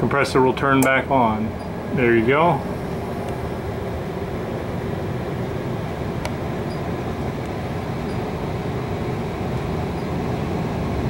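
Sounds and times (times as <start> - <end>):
furnace blower rushing air: 0.0 - 11.0
sharp click: 0.8 - 1.0.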